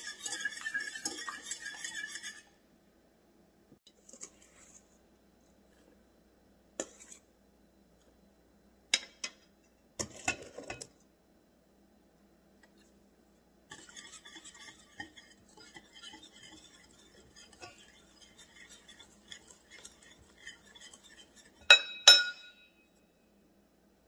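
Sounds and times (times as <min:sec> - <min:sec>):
whisk clinking and scraping bowl: 0:00.0 - 0:02.6, 0:04.0 - 0:04.9, 0:13.7 - 0:22.7
whisk knocking against bowl: 0:13.7 - 0:22.5.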